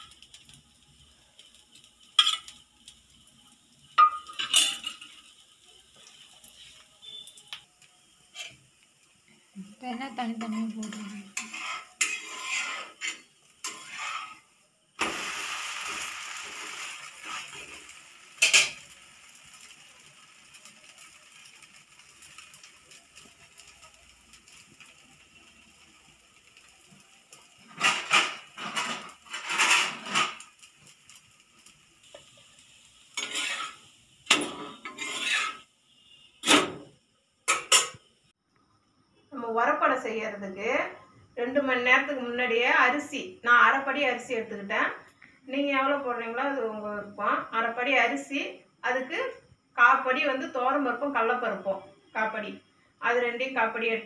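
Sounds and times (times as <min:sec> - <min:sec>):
sizzling: 0:00.0 - 0:54.0
steel plates clattering: 0:04.0 - 0:05.2
spatula scraping pan: 0:08.3 - 0:08.6, 0:10.2 - 0:18.8, 0:27.6 - 0:30.4, 0:33.1 - 0:35.7.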